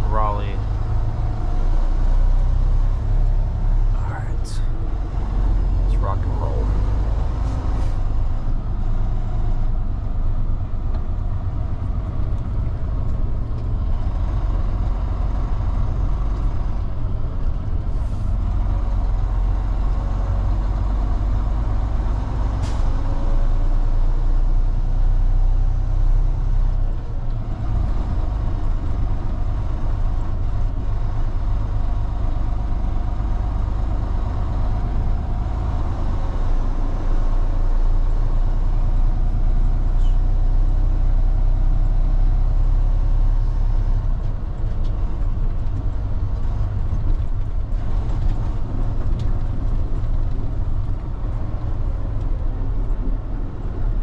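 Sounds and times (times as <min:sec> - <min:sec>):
diesel truck engine rumble: 0:00.0 - 0:54.0.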